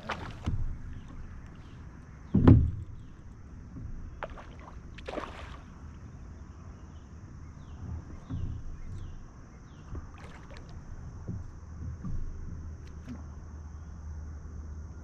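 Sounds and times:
fish splashing in water: 0:00.0 - 0:00.6, 0:04.2 - 0:05.9, 0:10.1 - 0:10.8.

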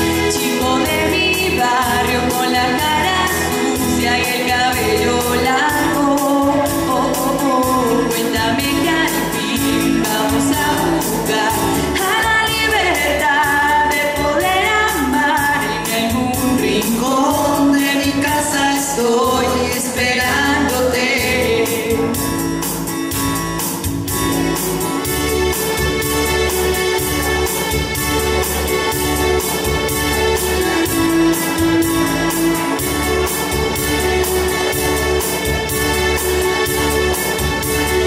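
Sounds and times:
electronic keyboard chords: 0:00.0 - 0:19.4, 0:20.2 - 0:38.0
person singing into microphone: 0:00.0 - 0:22.4
programmed drum beat: 0:21.7 - 0:38.0.

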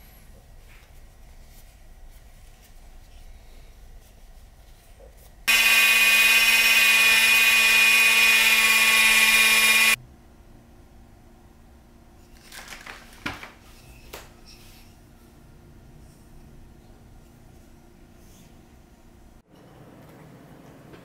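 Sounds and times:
loud machine-like buzz: 0:05.5 - 0:10.0.

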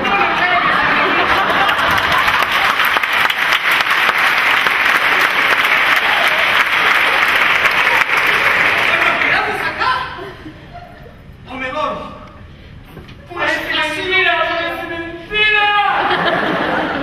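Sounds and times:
audience applauding: 0:00.4 - 0:09.8.

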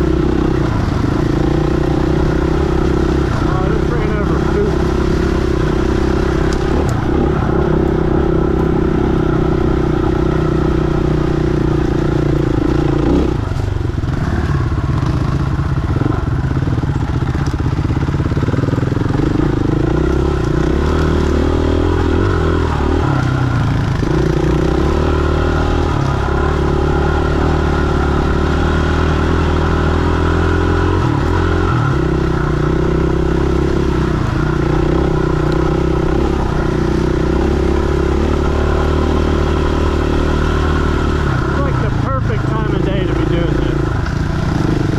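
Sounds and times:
dirt bike engine running: 0:00.0 - 0:44.9.

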